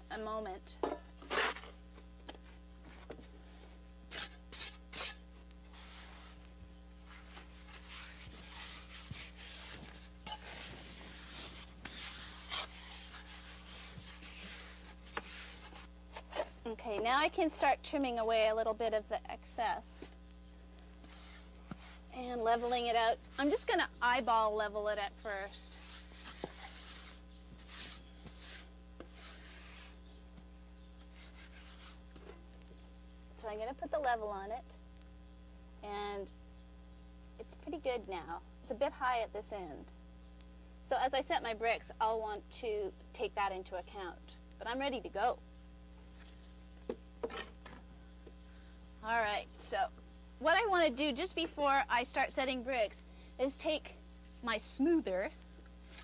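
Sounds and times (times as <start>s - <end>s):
trowel scraping wet mortar: 1.2s - 1.8s, 4.1s - 6.4s, 7.1s - 16.6s, 25.5s - 30.0s, 31.2s - 32.0s.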